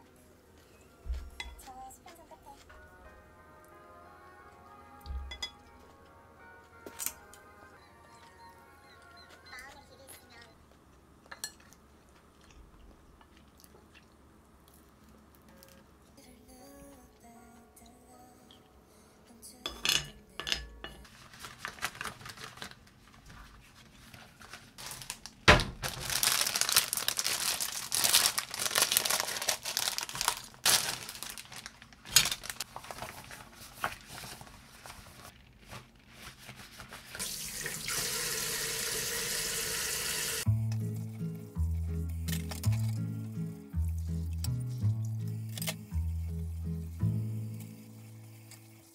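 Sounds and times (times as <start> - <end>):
dishes clattering: 19.7 - 21.1
rustling: 21.0 - 37.2
water running from tap: 37.2 - 40.5.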